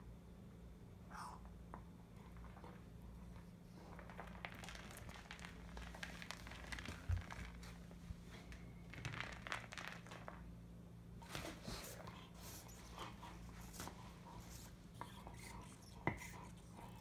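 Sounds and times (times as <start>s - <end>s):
faint steady hum: 0.0s - 17.0s
crinkly rustling: 2.4s - 10.5s.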